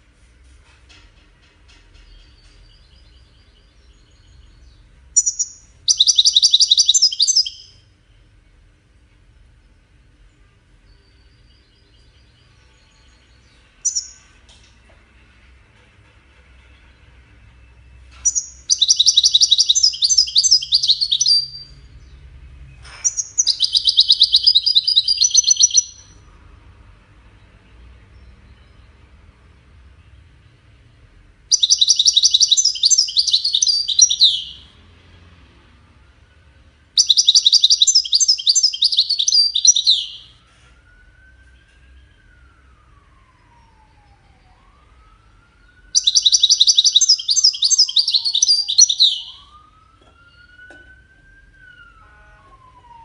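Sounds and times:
finch twittering and trilling: 0:02.2 - 0:07.8, 0:13.1 - 0:14.3, 0:18.2 - 0:22.2, 0:22.9 - 0:26.1, 0:31.5 - 0:34.7, 0:37.0 - 0:40.3, 0:46.0 - 0:49.6.

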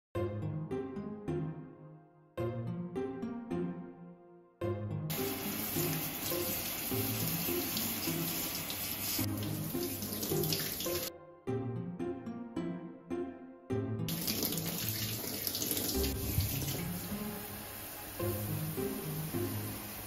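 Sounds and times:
light background music: 0:00.2 - 0:20.0
water running from shower head: 0:05.1 - 0:11.1, 0:14.1 - 0:20.0.

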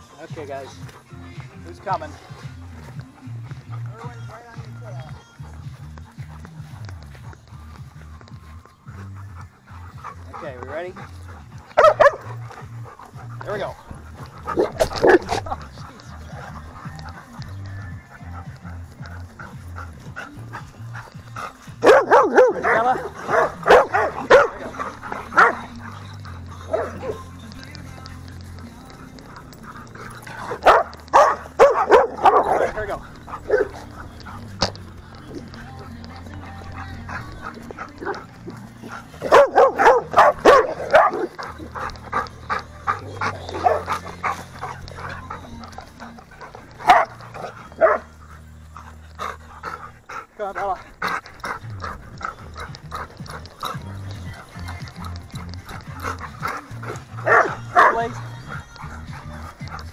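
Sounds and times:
dog barking: 0:11.2 - 0:13.5, 0:14.1 - 0:19.2, 0:21.8 - 0:28.1, 0:28.7 - 0:48.2, 0:54.1 - 0:59.9.

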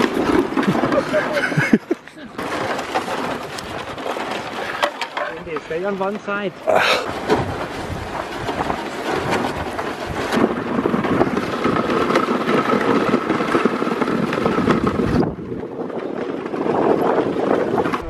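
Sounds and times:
sled scraping over snow: 0:00.0 - 0:18.0
wind buffeting microphone: 0:05.4 - 0:18.0.

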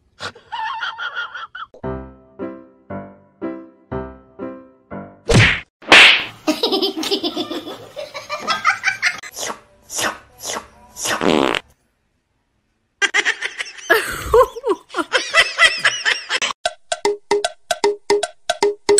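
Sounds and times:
buzzing fart noise: 0:11.2 - 0:11.6.

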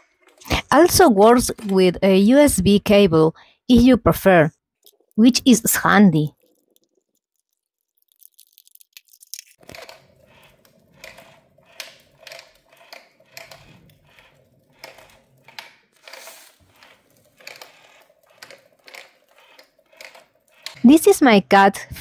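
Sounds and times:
plastic balls rattling: 0:04.8 - 0:20.8
toy motor humming: 0:09.6 - 0:21.4.

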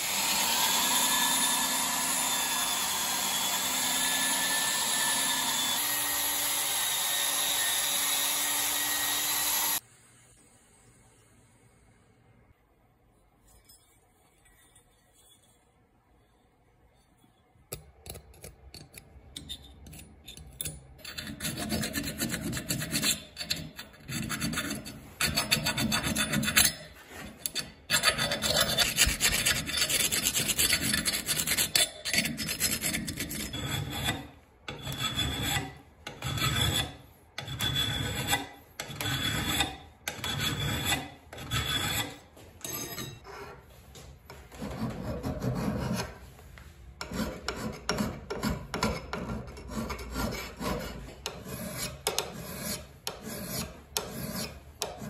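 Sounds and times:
files rasping on steel: 0:18.8 - 0:43.6, 0:44.6 - 0:46.2, 0:47.0 - 0:55.0.

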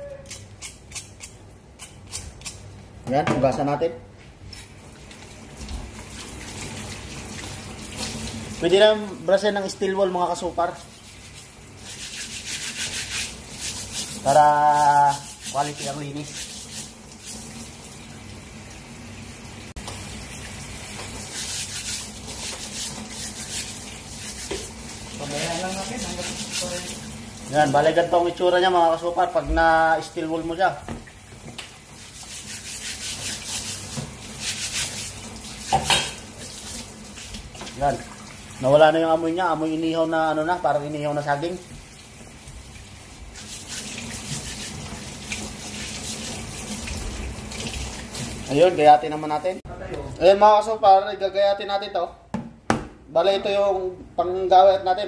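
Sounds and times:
running tap water: 0:04.5 - 0:49.6
steel wool scrubbing: 0:10.6 - 0:17.5, 0:21.2 - 0:24.7, 0:25.3 - 0:27.1, 0:32.0 - 0:35.7, 0:43.2 - 0:47.2.

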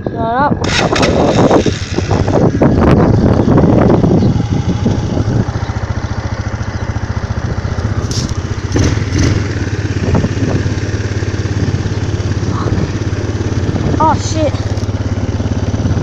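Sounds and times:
atv engine idling: 0:00.0 - 0:16.0.

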